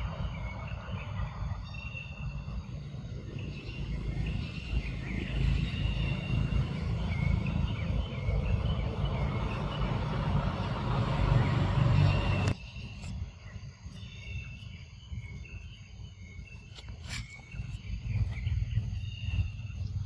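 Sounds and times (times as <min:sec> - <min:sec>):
steady low rumble: 0:17.4 - 0:20.0.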